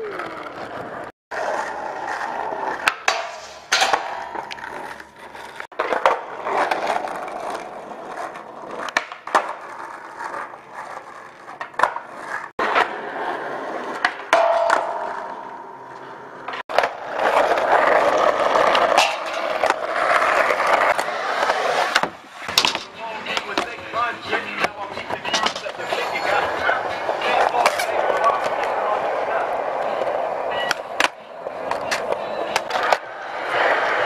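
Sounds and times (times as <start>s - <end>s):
skateboard clacks: 0.0s - 34.0s
skateboard wheels rolling: 0.0s - 34.0s
skateboard sliding on metal bar: 0.6s - 7.6s, 8.2s - 23.7s.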